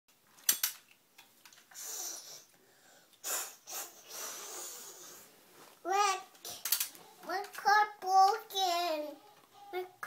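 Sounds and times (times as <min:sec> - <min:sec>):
child hissing and blowing: 0:01.7 - 0:05.3.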